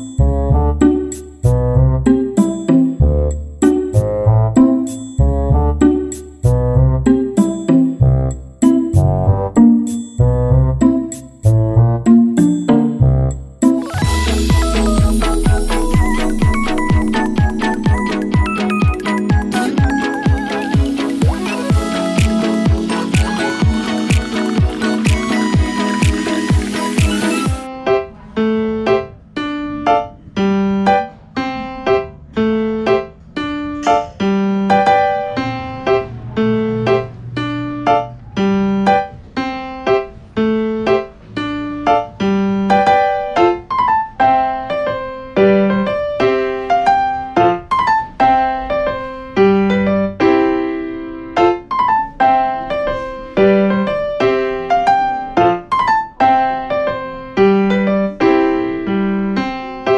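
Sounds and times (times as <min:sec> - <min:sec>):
keyboard music with bass: 0:00.0 - 0:59.9.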